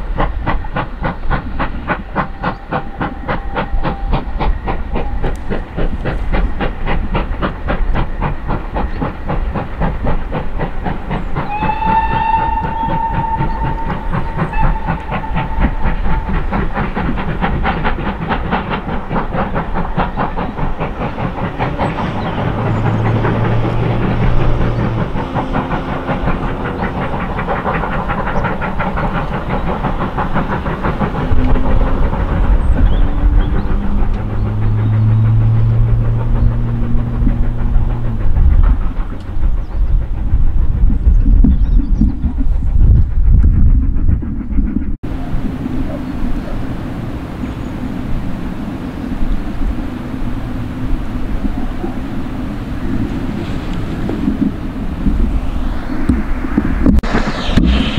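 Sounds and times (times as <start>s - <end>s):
steam locomotive chuffing: 0.0s - 57.9s
steam whistle blast: 11.4s - 16.8s.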